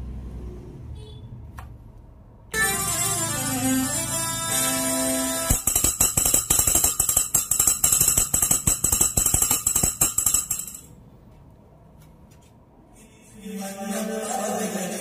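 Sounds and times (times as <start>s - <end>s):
jingling tambourine-like percussion: 5.5s - 10.9s
chanted singing: 13.3s - 15.0s.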